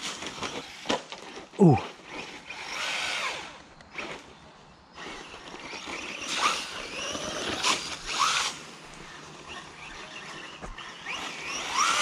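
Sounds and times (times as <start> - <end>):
electric motor whining: 5.0 - 12.0.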